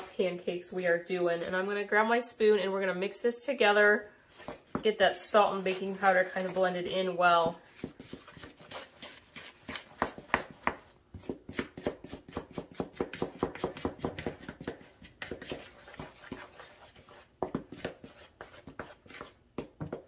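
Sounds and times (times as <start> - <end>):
spatula scraping mixing bowl: 4.3 - 11.0, 12.0 - 19.4.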